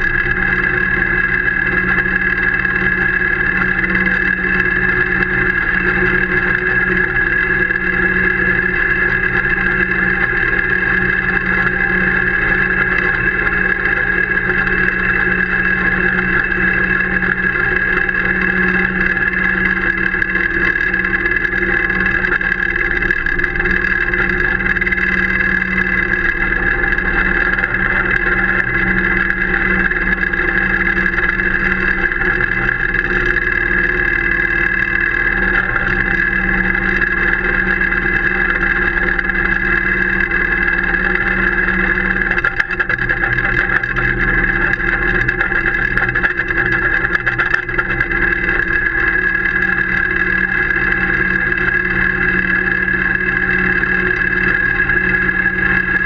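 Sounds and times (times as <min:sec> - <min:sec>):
high engine drone: 0:00.0 - 0:56.0.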